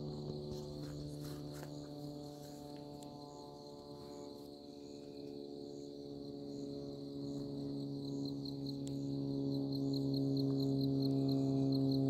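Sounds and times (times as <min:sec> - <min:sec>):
crickets chirping: 0:00.0 - 0:12.0
low mechanical hum: 0:00.0 - 0:12.0.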